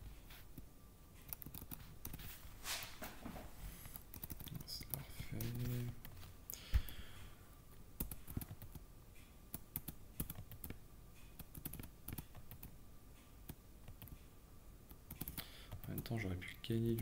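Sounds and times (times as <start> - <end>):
keyboard keys clicking: 1.3 - 2.2, 4.1 - 5.6, 8.0 - 8.8, 9.5 - 10.8, 11.4 - 12.7, 15.1 - 16.1.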